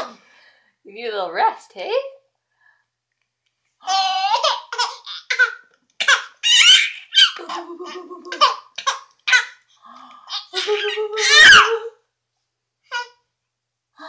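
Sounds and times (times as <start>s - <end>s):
baby giggling: 3.9s - 9.6s, 10.3s - 11.9s.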